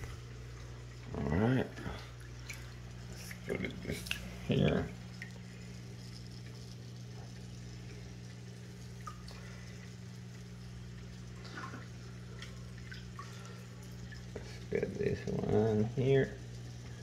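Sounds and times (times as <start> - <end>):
filtration equipment hum: 0.0 - 17.0
water trickling: 0.0 - 17.0
faint water drips: 0.1 - 17.0.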